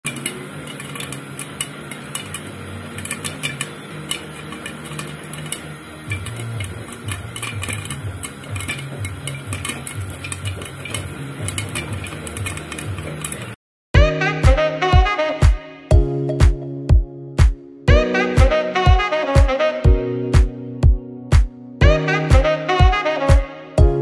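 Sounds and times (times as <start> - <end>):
popcorn popping in a pan: 0.0 - 13.6.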